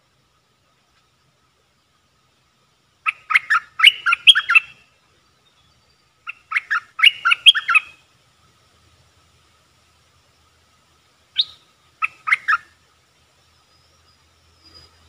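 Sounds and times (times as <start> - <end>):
bird singing bubbly notes: 3.1 - 4.8, 6.3 - 7.9, 11.4 - 12.8.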